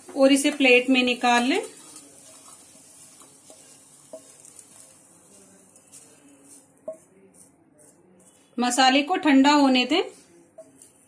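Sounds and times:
faint sizzle from pan: 0:00.0 - 0:07.5.

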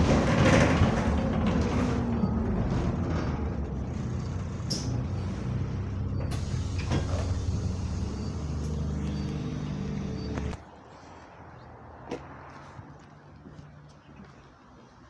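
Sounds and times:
bus diesel engine idling: 0:00.0 - 0:10.6.

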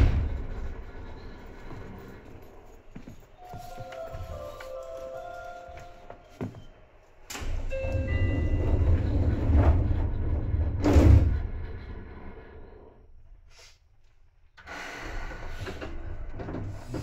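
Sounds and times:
train doors sliding shut: 0:00.0 - 0:01.8, 0:03.5 - 0:12.6, 0:14.6 - 0:17.0.

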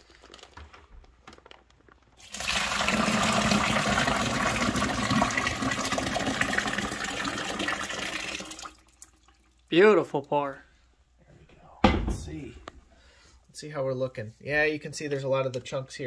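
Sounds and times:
liquid pouring into bucket: 0:02.2 - 0:09.7.

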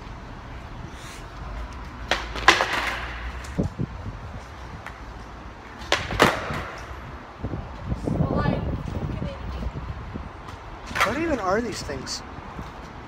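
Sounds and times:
skateboard wheels rumbling on bricks: 0:01.9 - 0:07.1
skateboard deck clacking: 0:02.0 - 0:03.6, 0:05.7 - 0:06.9.

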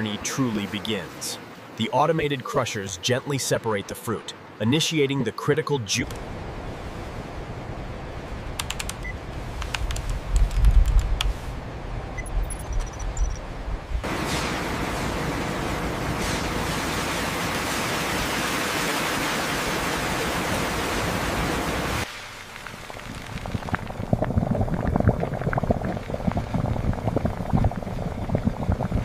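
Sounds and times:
liquid bubbling and fizzing: 0:14.0 - 0:29.0.

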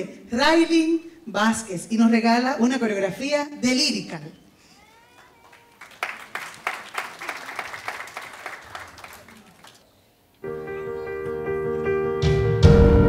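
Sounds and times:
audience applauding: 0:05.1 - 0:09.9
slow piano music: 0:10.4 - 0:13.0.

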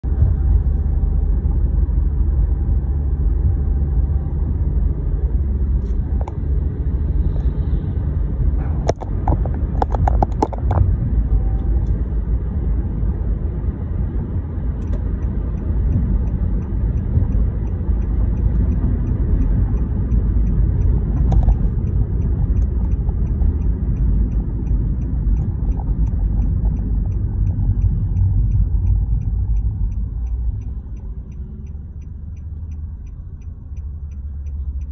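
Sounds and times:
vehicle road and engine rumble: 0:00.0 - 0:34.9
clicks and knocks: 0:08.8 - 0:10.9
faint regular ticking: 0:14.8 - 0:34.9.

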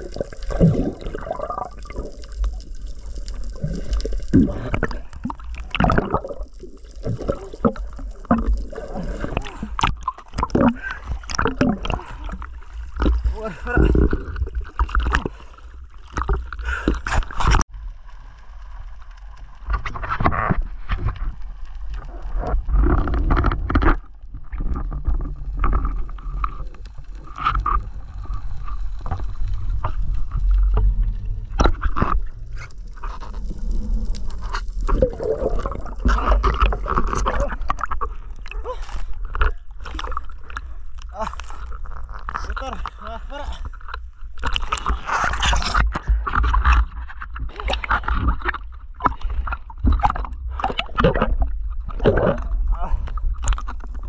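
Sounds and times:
water sloshing and gurgling: 0:00.0 - 0:54.0
deep rumble: 0:20.6 - 0:38.4.

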